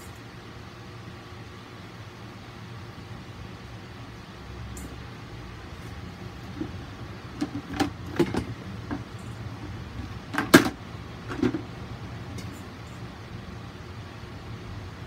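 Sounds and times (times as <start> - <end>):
steady low hum: 0.0 - 15.0
objects knocking and clicking: 6.4 - 11.7.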